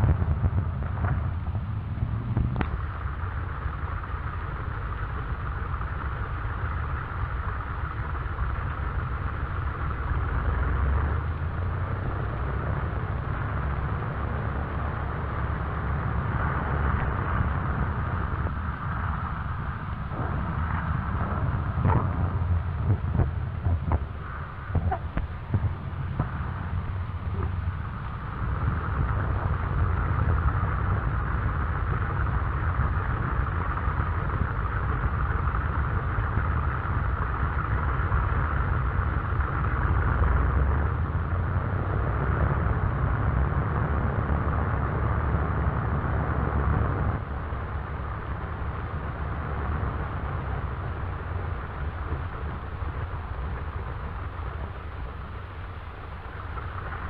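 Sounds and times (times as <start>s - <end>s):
propeller plane engines droning: 0.0s - 57.0s.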